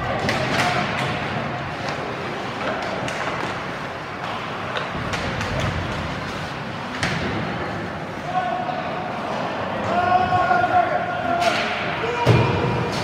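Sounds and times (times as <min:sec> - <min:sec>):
hockey sticks and puck clacking: 0:00.0 - 0:08.2, 0:11.3 - 0:13.0
skating noise: 0:00.0 - 0:13.0.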